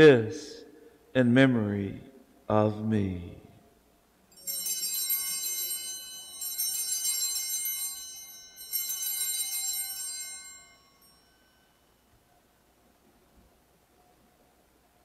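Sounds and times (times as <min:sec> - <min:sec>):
altar bells ringing: 0:04.3 - 0:12.1.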